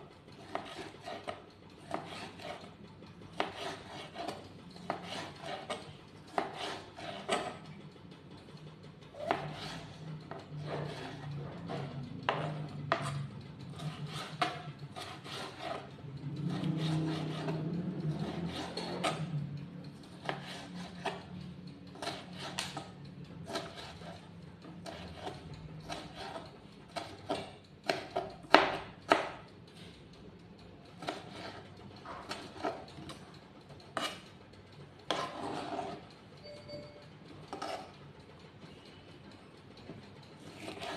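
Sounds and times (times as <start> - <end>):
knife chopping on a plastic board: 0.4 - 2.6, 3.4 - 7.6, 9.2 - 13.1, 13.8 - 15.8, 16.5 - 17.6, 18.2 - 19.2, 20.0 - 21.2, 22.0 - 22.9, 23.5 - 24.2, 24.8 - 29.4, 31.0 - 33.1, 40.5 - 40.9.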